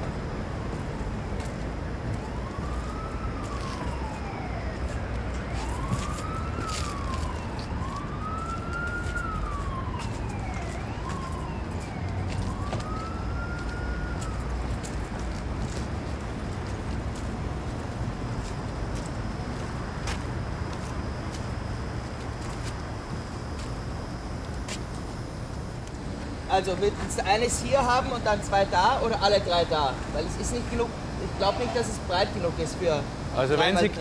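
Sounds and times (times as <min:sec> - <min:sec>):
emergency vehicle siren wailing: 0:01.5 - 0:16.4.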